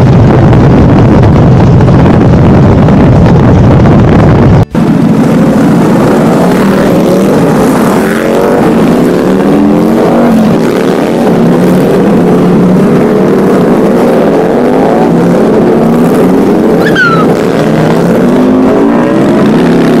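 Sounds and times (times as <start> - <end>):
motorcycle engines running: 0.0 - 20.0.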